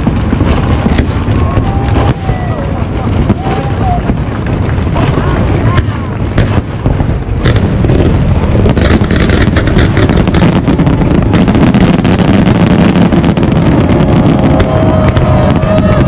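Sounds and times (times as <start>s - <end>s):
crackle of bursting fireworks: 0.0s - 16.0s
fireworks booming: 0.0s - 16.0s.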